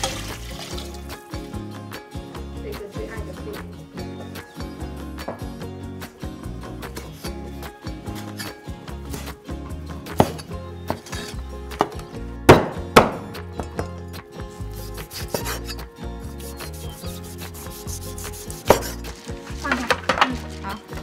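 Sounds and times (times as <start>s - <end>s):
cleaver chopping on wooden board: 11.8s - 13.2s, 18.6s - 19.0s.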